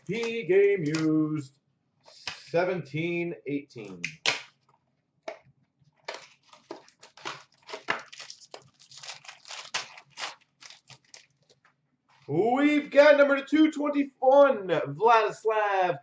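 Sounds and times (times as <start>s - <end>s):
wrapper crinkling and tearing: 6.0s - 11.7s.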